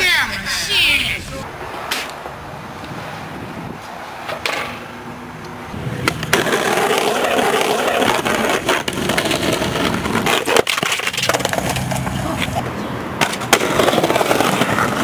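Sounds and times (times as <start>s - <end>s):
skateboard wheels rolling on concrete: 0.0s - 15.0s
skateboard clacking on ground: 6.0s - 15.0s.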